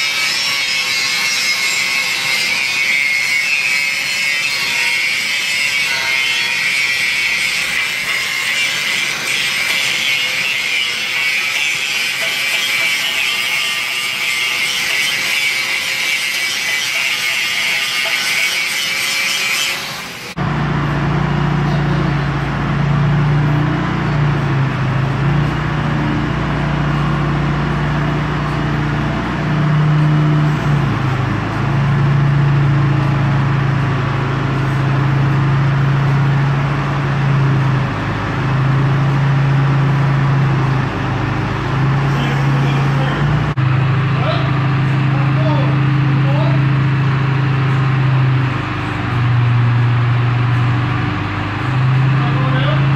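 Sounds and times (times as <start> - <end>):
angle grinder grinding steel: 0.0 - 20.4
forklift engine running: 20.0 - 52.9.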